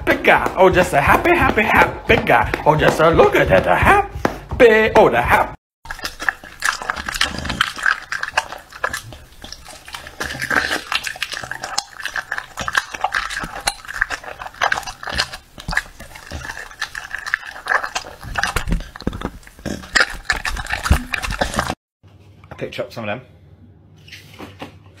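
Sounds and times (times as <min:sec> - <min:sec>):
dog chewing meat: 0:05.8 - 0:21.8.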